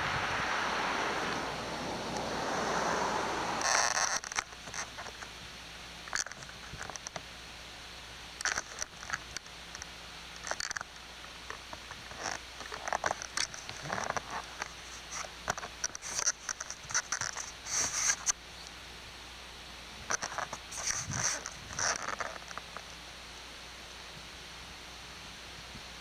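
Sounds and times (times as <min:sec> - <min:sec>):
low hum: 0:00.0 - 0:26.0
steady hiss: 0:00.0 - 0:26.0
rustling near microphone: 0:08.4 - 0:18.4, 0:20.0 - 0:22.9.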